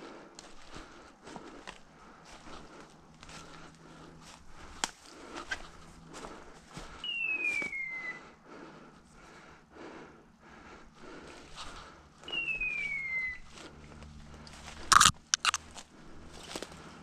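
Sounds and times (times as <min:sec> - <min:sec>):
falling whistle: 0:07.0 - 0:08.3, 0:12.3 - 0:13.4
footsteps crunching dry leaves: 0:13.4 - 0:16.8.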